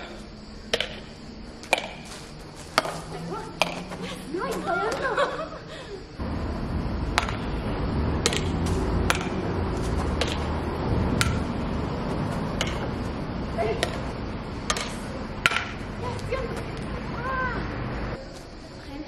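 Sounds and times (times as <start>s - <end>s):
racket hitting shuttlecock: 0.0s - 5.0s, 7.1s - 16.9s
low steady rumble: 6.2s - 18.2s.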